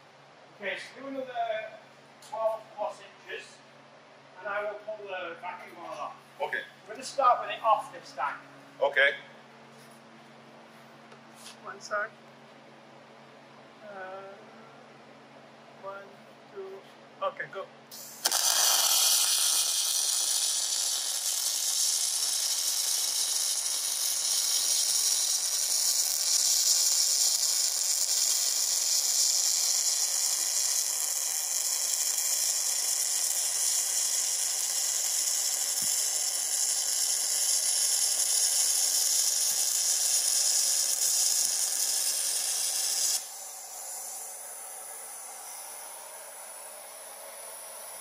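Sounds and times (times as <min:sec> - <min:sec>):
welding arc hissing: 0:17.9 - 0:48.0.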